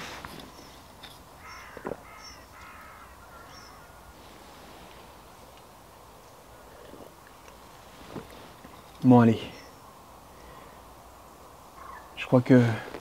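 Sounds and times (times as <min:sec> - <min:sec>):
faint outdoor background: 0:00.0 - 0:13.0
crow cawing: 0:01.4 - 0:04.2, 0:11.7 - 0:12.2.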